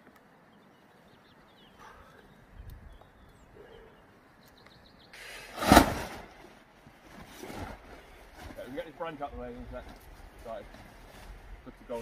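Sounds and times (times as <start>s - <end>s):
faint outdoor background: 0.0s - 12.0s
loud rustling burst: 5.2s - 6.5s.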